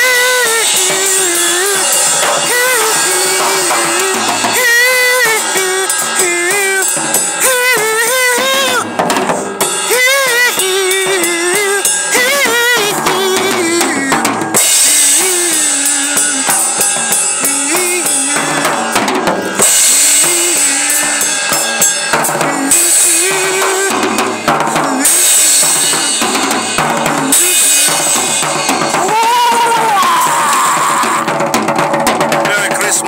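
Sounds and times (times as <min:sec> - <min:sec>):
drum kit played hard: 0:00.0 - 0:33.0.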